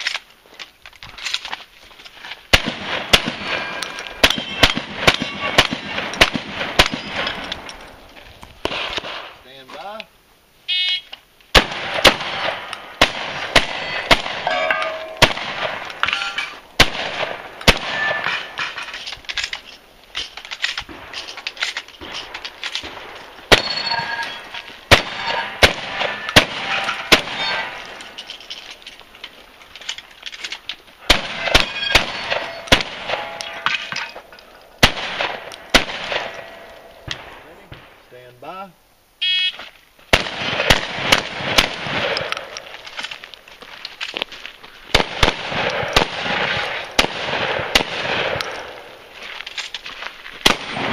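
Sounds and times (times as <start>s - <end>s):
shotgun shots: 2.5s - 7.8s, 8.6s - 9.4s, 11.5s - 18.8s, 22.0s - 28.0s, 31.0s - 34.2s, 34.8s - 38.0s, 40.1s - 42.6s, 44.9s - 48.9s, 50.4s - 50.9s
steel targets ringing: 3.4s - 5.8s, 13.7s - 15.3s, 16.0s - 16.6s, 17.7s - 19.0s, 23.5s - 28.1s, 31.1s - 34.3s.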